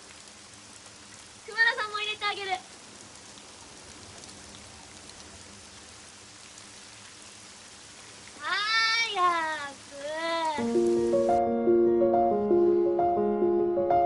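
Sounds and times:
heavy rain hissing: 0:00.0 - 0:11.4.

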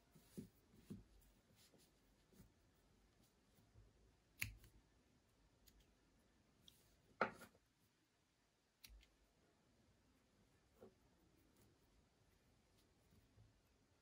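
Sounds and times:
scissors snipping yarn: 0:04.3 - 0:04.8.

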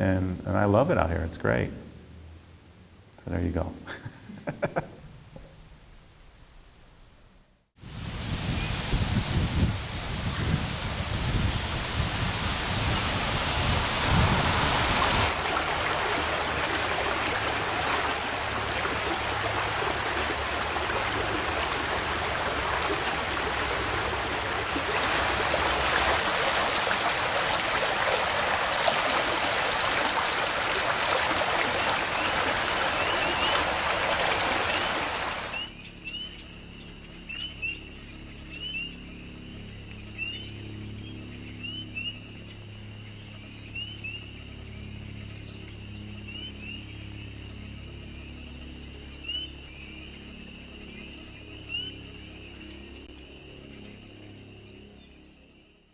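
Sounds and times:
outdoor ambience: 0:00.0 - 0:55.9
rush of water: 0:07.8 - 0:35.7.

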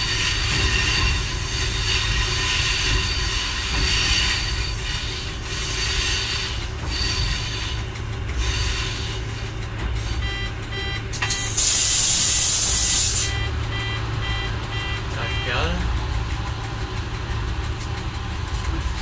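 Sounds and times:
railcar engine and wheels rumbling: 0:00.0 - 0:19.0
short beeping tone: 0:10.2 - 0:11.6, 0:13.1 - 0:15.8
loud hiss: 0:11.5 - 0:13.3.

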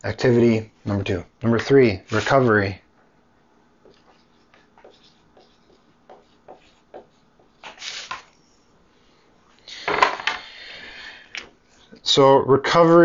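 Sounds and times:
marker pen scratching on paper: 0:03.8 - 0:08.3
paper rustling: 0:07.6 - 0:08.4.

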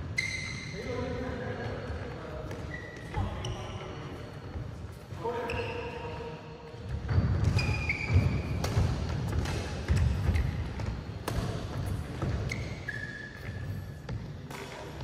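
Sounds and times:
shoe squeaks on court: 0:00.0 - 0:01.0, 0:01.8 - 0:04.2, 0:05.2 - 0:06.3, 0:07.0 - 0:08.6, 0:11.9 - 0:14.8
racket hitting shuttlecock: 0:07.4 - 0:12.8, 0:13.4 - 0:15.0.

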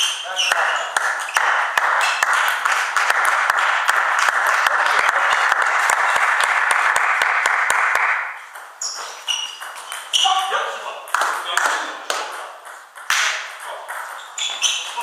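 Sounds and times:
table tennis ball bouncing: 0:00.0 - 0:15.0
applause: 0:00.5 - 0:08.3.

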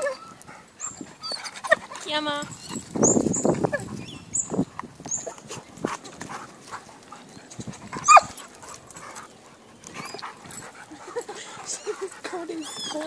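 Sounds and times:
dog yelp: 0:08.0 - 0:08.4.

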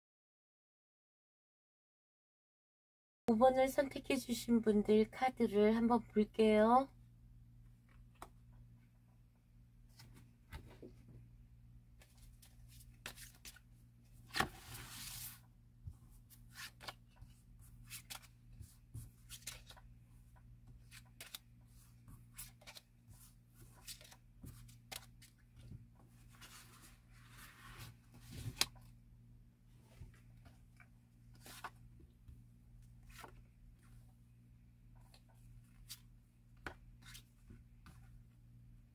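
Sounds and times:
cards clicking and rustling: 0:12.0 - 0:13.6, 0:17.8 - 0:18.4, 0:19.2 - 0:19.9, 0:20.8 - 0:21.6, 0:22.3 - 0:22.9, 0:23.7 - 0:25.4.

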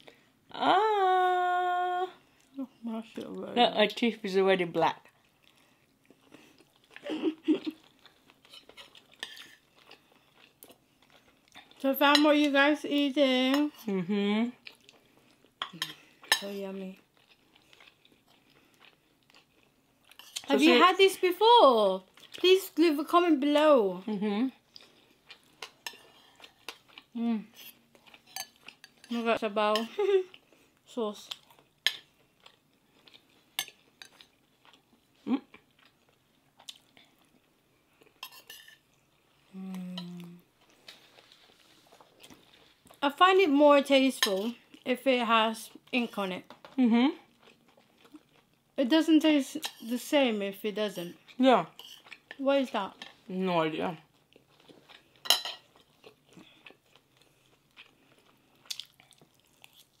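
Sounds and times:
person humming: 0:00.5 - 0:02.7, 0:13.9 - 0:14.5, 0:27.2 - 0:27.5, 0:39.5 - 0:40.5
faint chewing: 0:05.0 - 0:12.2, 0:13.5 - 0:20.8, 0:24.6 - 0:29.2, 0:29.8 - 0:43.0, 0:45.7 - 0:48.8, 0:51.0 - 0:53.3, 0:54.0 - 1:00.0
cutlery clinking on plates: 0:55.2 - 0:55.7.

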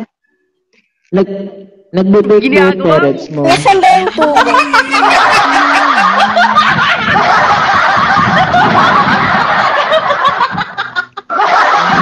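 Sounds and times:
people laughing together: 0:03.5 - 0:12.0.

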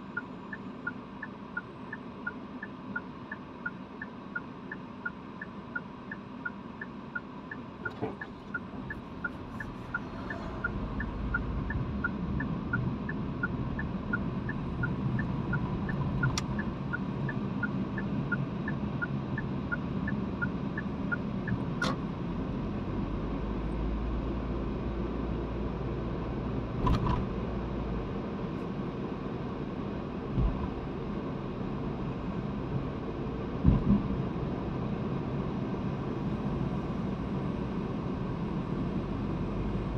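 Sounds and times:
turn signal ticking: 0:00.0 - 0:22.1
car engine and road noise: 0:00.0 - 0:39.9.

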